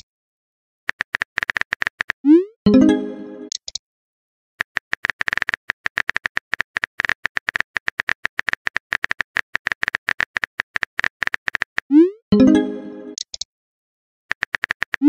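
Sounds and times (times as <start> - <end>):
keyboard clicks: 0.9 - 2.2, 3.5 - 3.8, 4.6 - 12.0, 13.1 - 13.5, 14.3 - 15.0.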